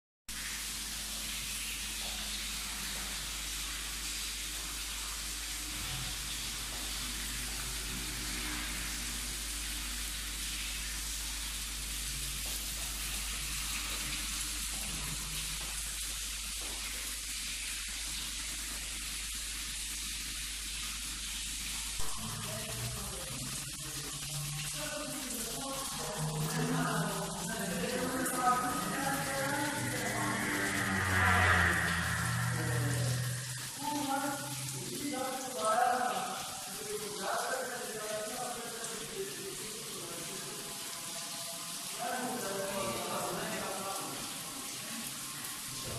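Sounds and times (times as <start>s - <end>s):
low hum: 22.0s - 34.8s.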